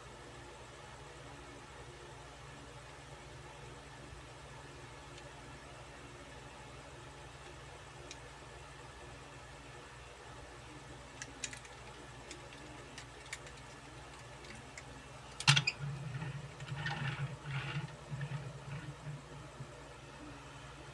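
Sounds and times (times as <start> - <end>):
small wheels rumbling on tabletop: 15.5 - 19.6.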